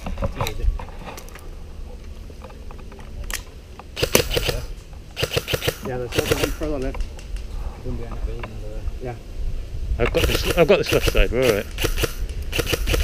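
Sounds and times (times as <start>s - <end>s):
wind rumble on microphone: 0.0s - 2.0s, 6.1s - 13.0s.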